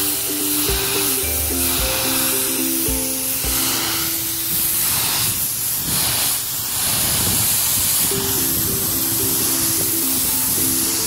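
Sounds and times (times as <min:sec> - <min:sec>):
background music: 0:00.0 - 0:04.8, 0:08.1 - 0:11.0
pressure washer jet hissing: 0:00.0 - 0:11.0.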